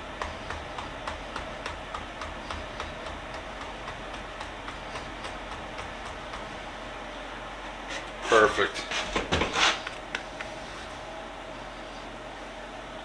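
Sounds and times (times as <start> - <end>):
rapid even ticking: 0.0 - 6.8.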